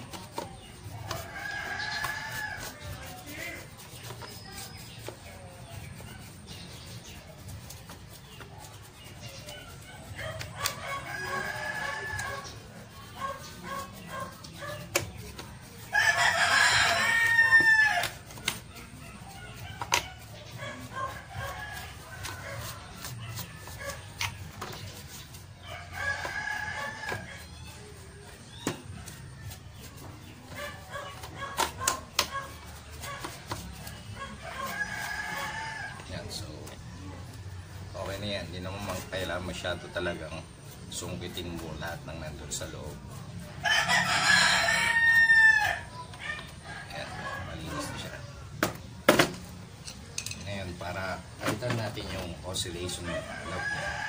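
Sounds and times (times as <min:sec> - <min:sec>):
rooster crowing: 0:10.6 - 0:12.5, 0:15.9 - 0:18.1, 0:25.7 - 0:27.4, 0:43.6 - 0:46.0, 0:53.2 - 0:54.0.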